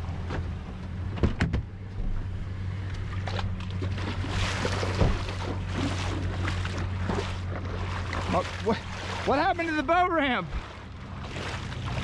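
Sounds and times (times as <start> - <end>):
pickup engine running low: 0.0 - 12.0
water washing around tyres: 2.8 - 12.0.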